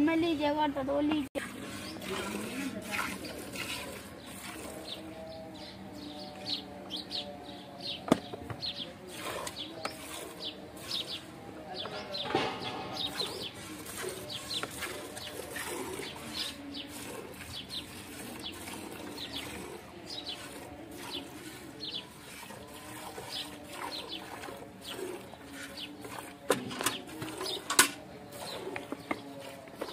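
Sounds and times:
milk squirting into metal bucket: 1.4s - 5.0s, 9.1s - 11.2s, 12.6s - 29.9s.

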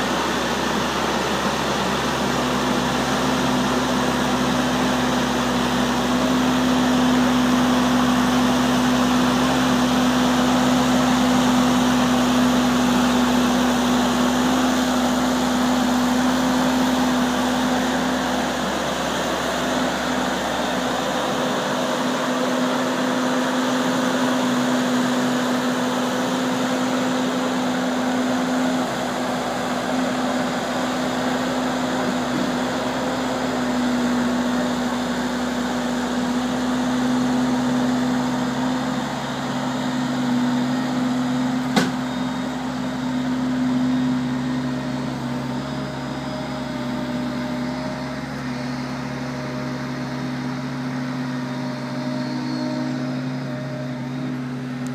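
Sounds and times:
diesel engine running: 0.0s - 54.9s
low tone: 39.1s - 54.9s
sharp knock: 41.7s - 42.0s.

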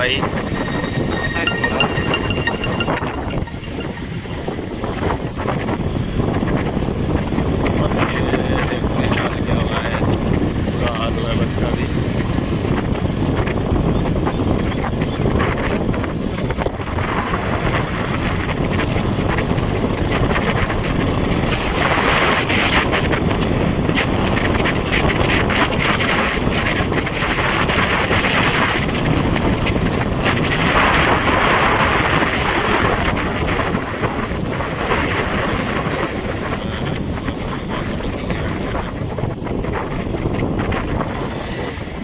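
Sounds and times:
wind rushing over microphone: 0.0s - 42.0s.

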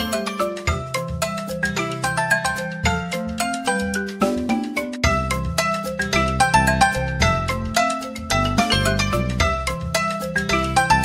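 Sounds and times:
mallet percussion tune: 0.0s - 11.0s.

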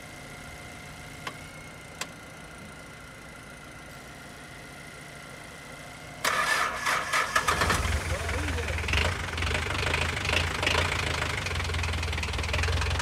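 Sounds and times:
car engine cranking: 6.2s - 13.0s.

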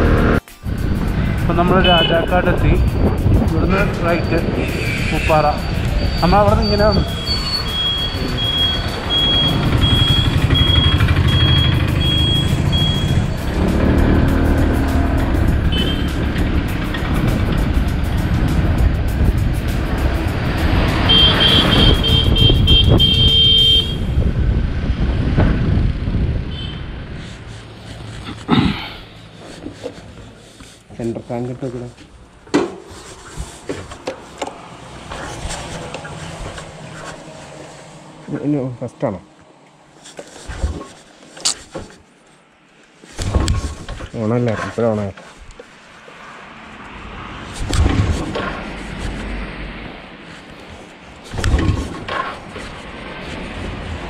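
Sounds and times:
wind on microphone: 0.0s - 1.6s, 2.4s - 10.3s, 15.2s - 28.4s
motorcycle engine: 0.0s - 1.7s, 7.4s - 29.9s
turn-indicator buzzer beeping: 7.7s - 13.2s
motorcycle engine idling: 9.5s - 13.4s.

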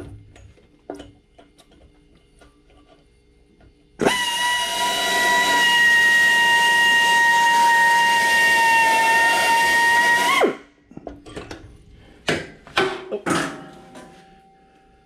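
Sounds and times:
electric drill whining: 4.0s - 10.6s.

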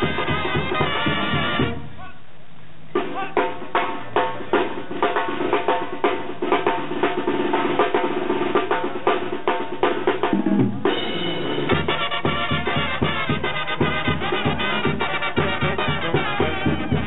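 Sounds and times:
brass chord: 0.0s - 1.9s, 10.9s - 17.0s
drums beating: 0.0s - 2.1s, 2.8s - 17.0s.

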